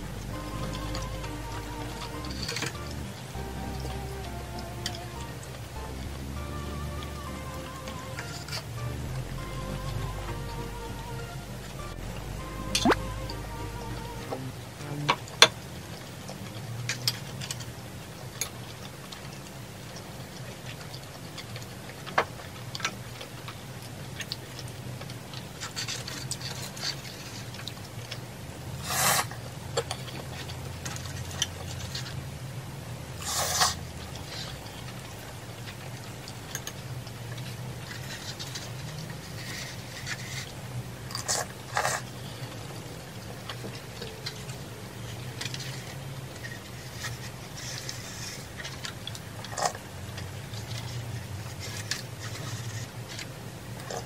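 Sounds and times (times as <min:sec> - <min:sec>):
low steady hum: 0:00.0 - 0:16.7
faint chewing: 0:33.2 - 0:54.0.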